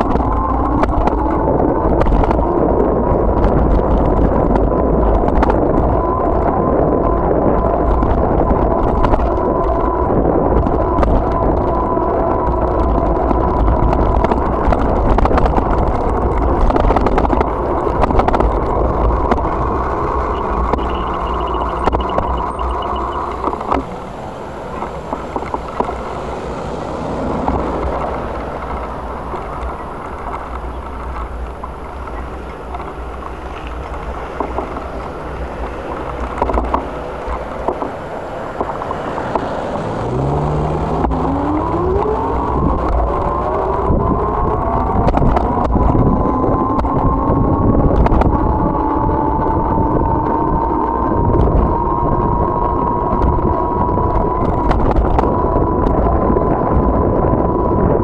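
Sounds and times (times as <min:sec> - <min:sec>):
road and tyre noise: 0:00.0 - 0:58.0
vehicle engine accelerating: 0:00.0 - 0:58.0
wind on microphone: 0:00.0 - 0:58.0
rattles and knocks from bumps: 0:13.2 - 0:22.7.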